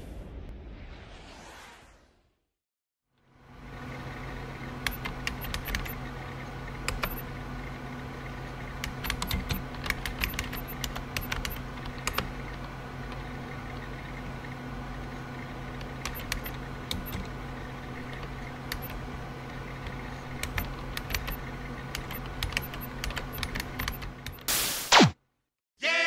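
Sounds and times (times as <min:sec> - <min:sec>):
steady low hum: 0:03.2 - 0:24.5
keyboard key clicks: 0:08.9 - 0:12.3.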